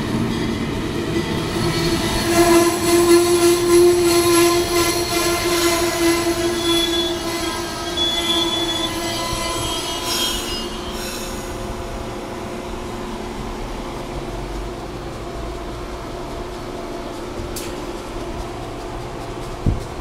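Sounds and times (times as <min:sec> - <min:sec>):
train wheels squealing: 0:00.0 - 0:13.4
rumble of passing train cars: 0:00.0 - 0:20.0.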